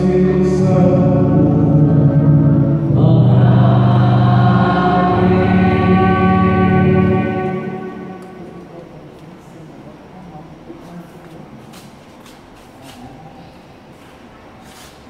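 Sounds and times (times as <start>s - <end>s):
voices singing: 0.0s - 8.7s
electronic keyboard: 0.0s - 9.1s
violins: 2.0s - 8.8s
trumpet: 3.6s - 8.8s.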